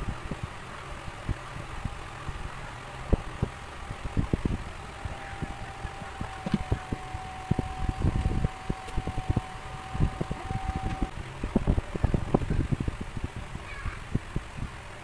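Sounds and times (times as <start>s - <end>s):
heat gun fan blowing: 0.0s - 15.0s
thin steady whine: 0.0s - 15.0s
low thumps of plastic pieces: 5.4s - 11.1s.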